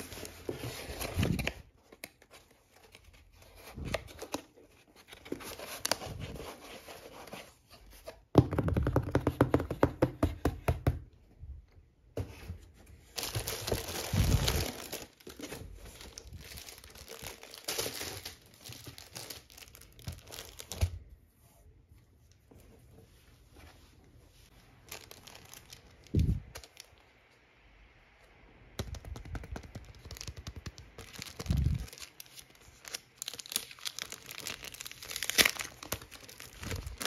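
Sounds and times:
plastic sleeve crinkling: 0:13.1 - 0:20.8, 0:24.6 - 0:27.0, 0:28.8 - 0:37.0.

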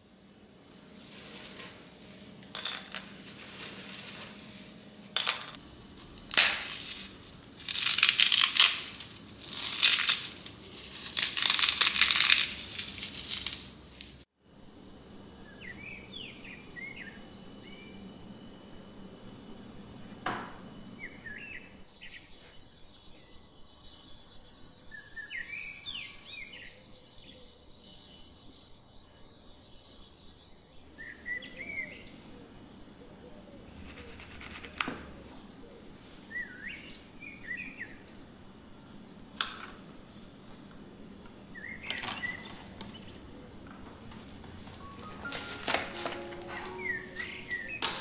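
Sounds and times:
quiet birds chirping: 0:00.0 - 0:48.0
plastic bags crinkling: 0:00.8 - 0:14.2
meringue crunching by hand: 0:03.1 - 0:14.2.

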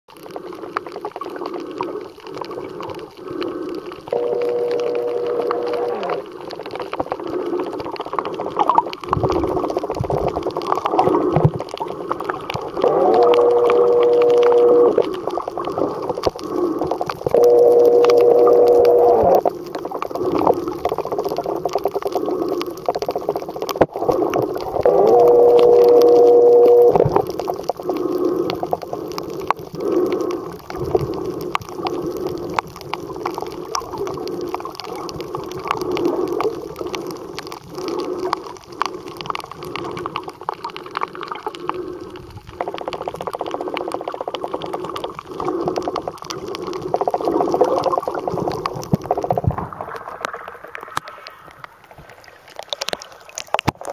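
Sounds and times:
underwater swishing and gurgling: 0:00.1 - 0:53.9
steady hum: 0:04.1 - 0:06.2, 0:12.8 - 0:15.1, 0:17.3 - 0:19.4, 0:24.9 - 0:27.2.

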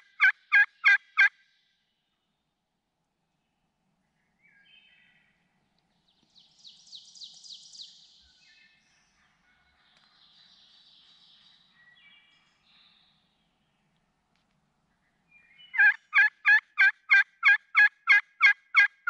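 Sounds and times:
faint songbirds singing: 0:01.5 - 0:16.1.

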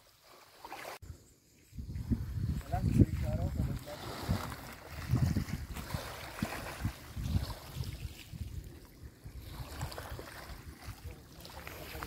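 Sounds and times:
small waves lapping: 0:00.0 - 0:01.0, 0:02.0 - 0:12.0
wind buffeting microphone: 0:01.7 - 0:12.0.

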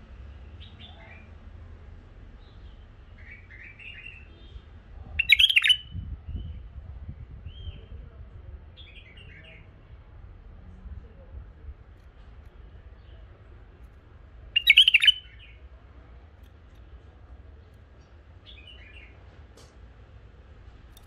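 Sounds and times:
caged birds chirping: 0:02.4 - 0:08.1, 0:11.1 - 0:21.0
loud bird call: 0:14.6 - 0:15.4.

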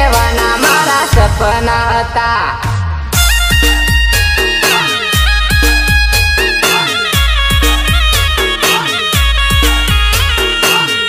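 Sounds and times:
electronic kick drum hits: 0:01.1 - 0:06.6
high lead melody: 0:03.1 - 0:11.0.

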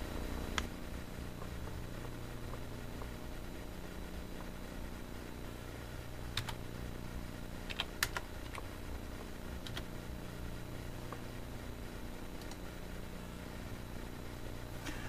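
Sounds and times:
steady low hum: 0:00.0 - 0:15.0
keyboard keys clicking: 0:06.3 - 0:06.6, 0:07.6 - 0:08.7, 0:09.6 - 0:09.9, 0:12.4 - 0:12.6.

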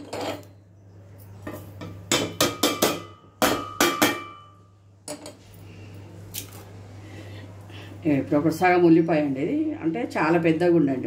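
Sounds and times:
metal pan knocking on steel jar: 0:01.9 - 0:04.6.

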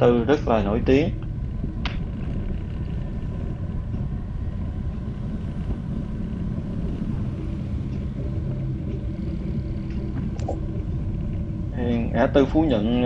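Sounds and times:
city street traffic rumble: 0:00.0 - 0:13.0.

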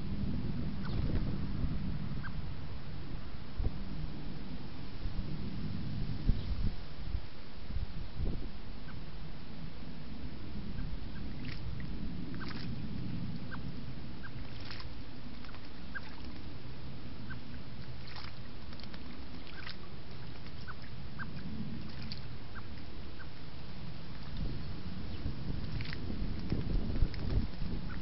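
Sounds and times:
steady low rumble: 0:00.0 - 0:28.0
birds splashing in water: 0:11.1 - 0:12.8, 0:14.2 - 0:16.6, 0:17.2 - 0:28.0.

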